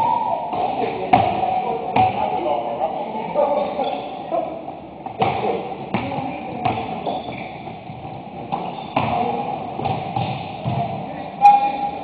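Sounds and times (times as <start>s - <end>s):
basketball bouncing on hardwood floor: 5.2s - 10.9s.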